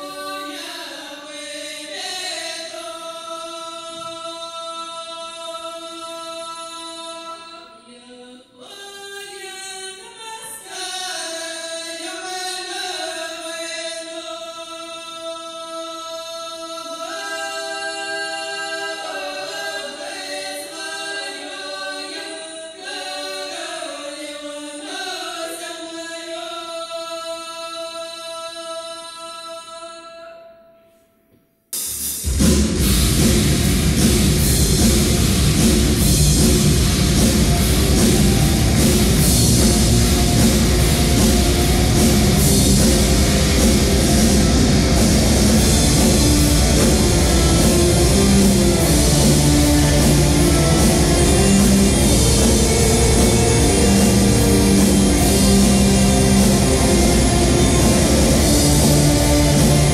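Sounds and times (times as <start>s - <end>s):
choir singing a cappella: 41.6s - 59.9s.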